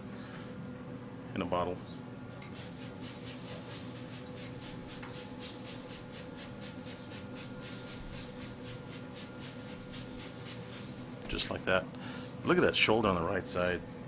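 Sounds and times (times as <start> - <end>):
steady low hum: 0.0 - 14.0
spray bottle squirts: 2.4 - 11.1.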